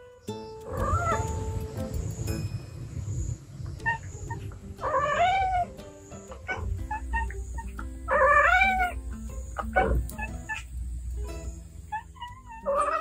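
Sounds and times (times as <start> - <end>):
light plucked background music: 0.0 - 13.0
cat yowling: 4.8 - 5.7, 6.5 - 9.0, 11.9 - 13.0.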